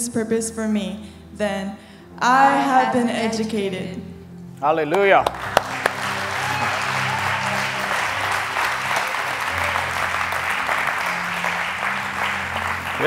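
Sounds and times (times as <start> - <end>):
congregation applauding: 4.9 - 13.0.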